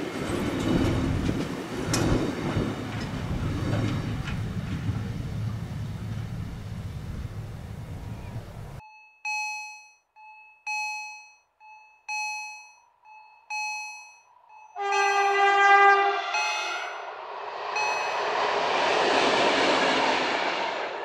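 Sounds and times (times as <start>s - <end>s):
freight train rushing: 0.0s - 8.8s, 14.8s - 21.0s
level-crossing warning bell ringing: 8.8s - 17.0s, 17.7s - 18.3s
locomotive horn blast: 14.8s - 17.1s.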